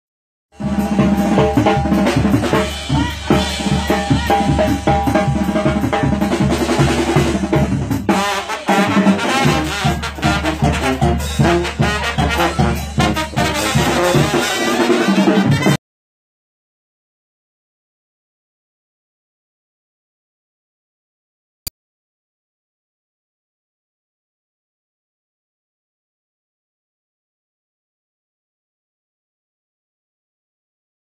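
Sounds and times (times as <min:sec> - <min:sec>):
bass drum beat: 0:00.6 - 0:08.2, 0:08.8 - 0:14.4
trumpets and trombones playing: 0:00.6 - 0:15.8.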